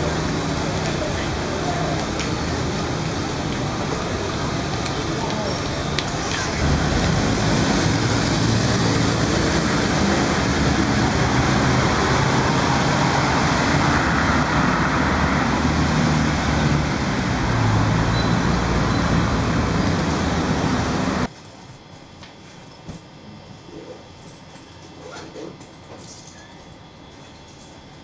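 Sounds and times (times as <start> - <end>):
road noise: 0.0 - 21.3
cars driving past: 6.1 - 21.3.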